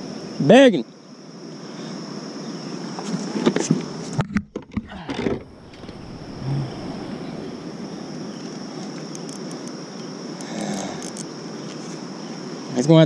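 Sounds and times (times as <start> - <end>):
crickets chirring: 0.0 - 13.0
low outdoor rush: 4.8 - 12.9
short low hum: 5.4 - 8.2.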